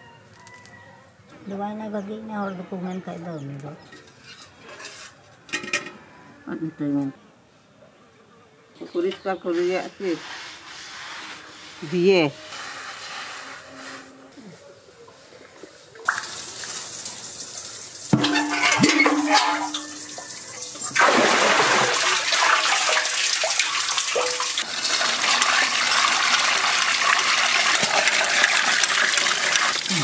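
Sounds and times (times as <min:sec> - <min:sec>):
water splashing and pouring: 0:16.0 - 0:30.0
metal bucket knocking in well: 0:18.1 - 0:30.0.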